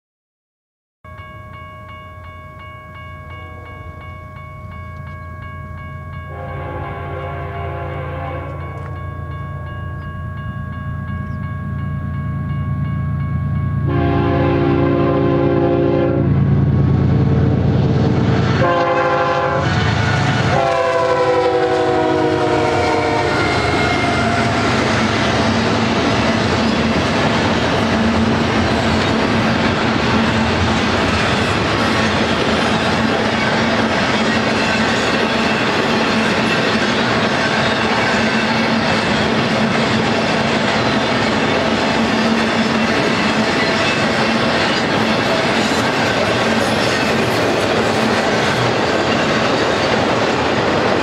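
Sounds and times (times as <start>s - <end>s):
train horn blasts: 3.3s - 4.0s, 6.3s - 9.0s, 13.8s - 16.6s, 17.2s - 24.8s
train cars rumbling and clattering: 3.9s - 51.0s.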